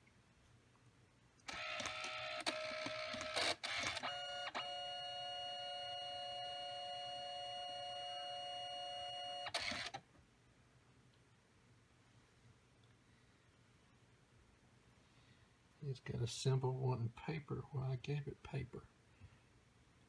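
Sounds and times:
printer motor whirring: 1.5s - 10.0s.

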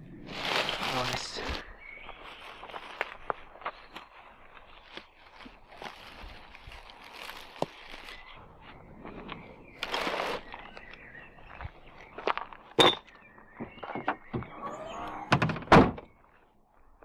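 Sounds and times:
plastic bag rustling: 0.2s - 8.4s.

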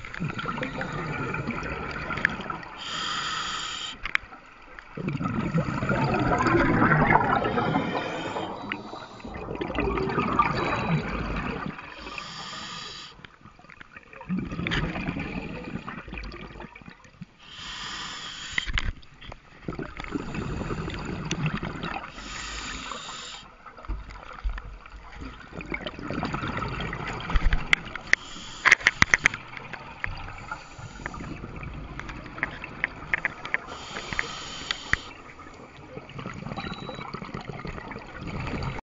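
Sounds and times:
bubbles gurgling: 0.0s - 3.0s, 4.9s - 12.3s, 13.9s - 17.0s, 19.6s - 23.1s, 24.1s - 28.5s, 29.2s - 38.8s
regulator hiss on inhalation: 2.8s - 4.1s, 7.4s - 9.4s, 12.0s - 13.2s, 17.4s - 18.8s, 22.1s - 23.5s, 28.1s - 29.4s, 33.6s - 35.2s.

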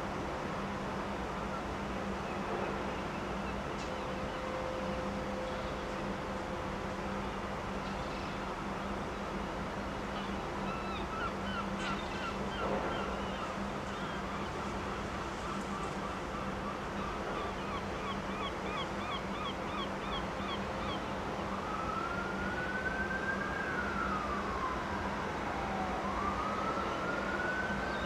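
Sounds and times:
siren wailing: 21.4s - 28.0s
siren chirps: 21.5s - 28.0s.

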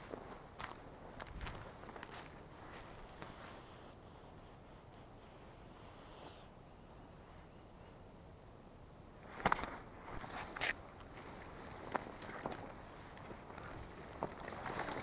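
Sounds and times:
bird whistling: 2.8s - 9.0s.

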